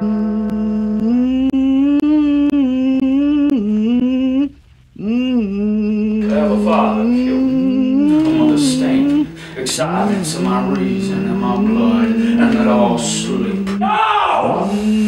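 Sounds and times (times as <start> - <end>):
wordless voice holding notes: 6.0 - 15.0.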